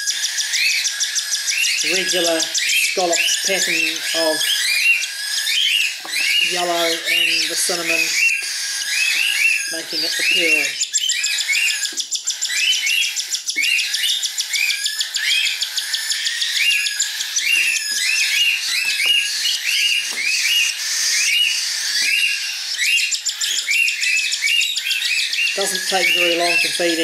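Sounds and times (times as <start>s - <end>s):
bird chicks squawking: 0.0s - 27.0s
fast pulsing chatter: 1.8s - 4.6s, 25.6s - 27.0s.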